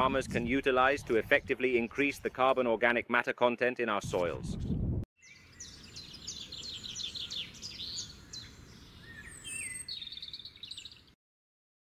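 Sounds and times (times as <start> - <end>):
songbirds chirping and trilling: 4.6 - 11.2.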